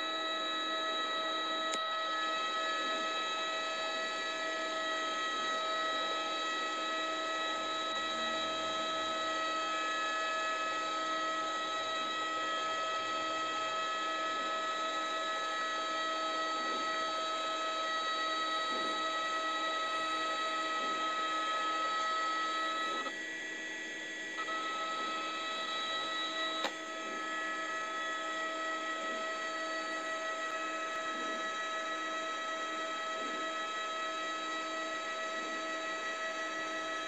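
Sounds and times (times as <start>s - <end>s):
droning hum: 0.0s - 37.0s.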